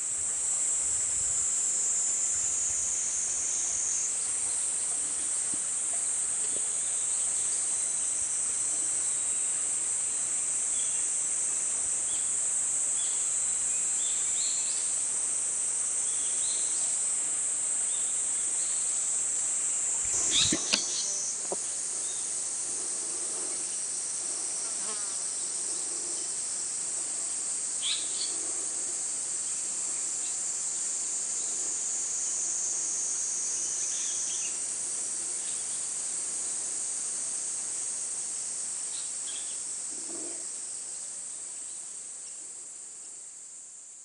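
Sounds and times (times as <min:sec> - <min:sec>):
insects buzzing: 0:00.0 - 0:44.0
faint bird calls: 0:20.1 - 0:21.2.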